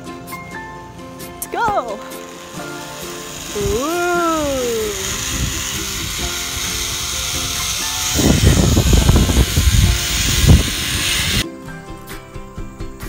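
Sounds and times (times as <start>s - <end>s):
zip-line trolley hissing on cable: 1.0s - 11.5s
wind buffeting microphone: 5.0s - 11.4s.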